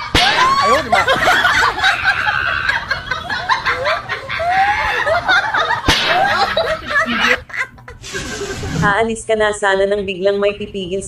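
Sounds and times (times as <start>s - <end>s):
people laughing: 0.0s - 8.8s.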